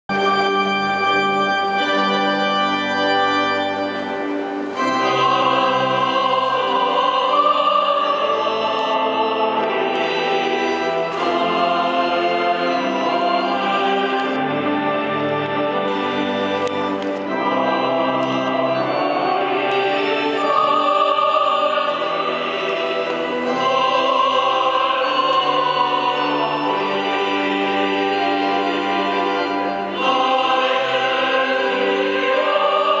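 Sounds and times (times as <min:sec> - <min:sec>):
organ sustained chords: 0:00.1 - 0:33.0
person singing: 0:04.8 - 0:14.4, 0:19.6 - 0:33.0.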